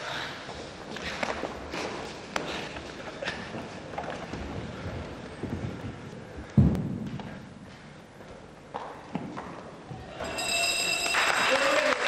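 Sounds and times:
bell ringing: 10.2s - 12.0s.

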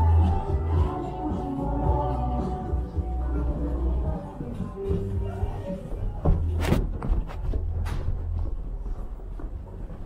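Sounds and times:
footsteps on hallway floor: 3.4s - 10.0s.

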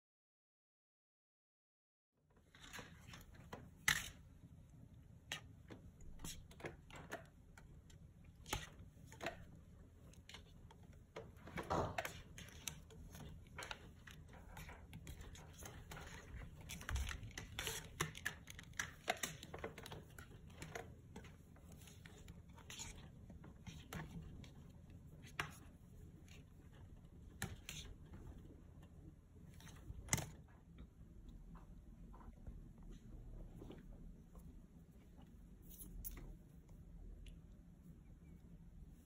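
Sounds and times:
kitten paws tapping and scuffling: 5.2s - 37.7s.

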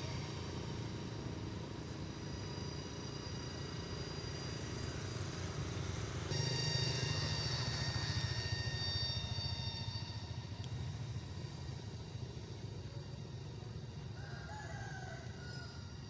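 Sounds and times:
high-pitched tones: 6.3s - 11.5s.

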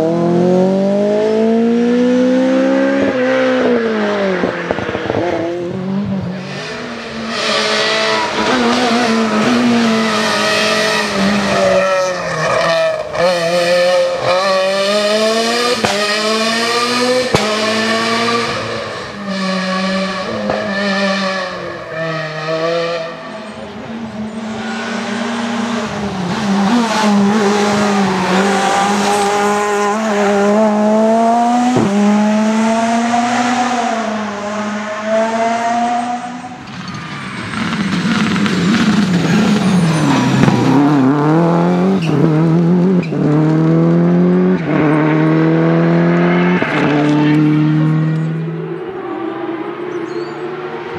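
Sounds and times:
rally car engine revving hard: 0.0s - 36.6s, 37.4s - 50.9s.

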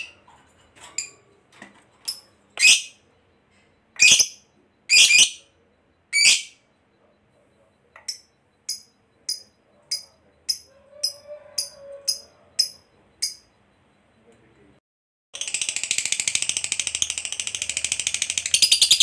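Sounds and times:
bird high chirps: 2.1s - 3.0s, 4.0s - 5.5s, 6.2s - 6.6s.

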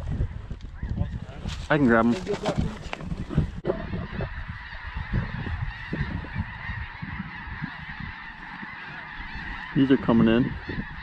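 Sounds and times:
wind rumble on microphone: 0.0s - 11.0s
geese honking: 3.6s - 11.0s.

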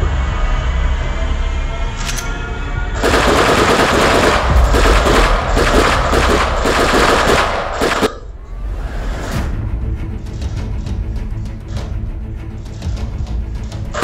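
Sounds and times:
background music: 0.0s - 14.0s
machine-gun shots: 3.0s - 8.2s.

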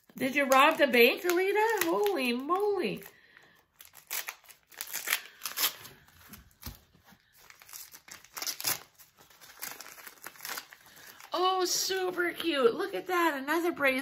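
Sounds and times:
paper crinkling and rustling: 0.0s - 12.6s.

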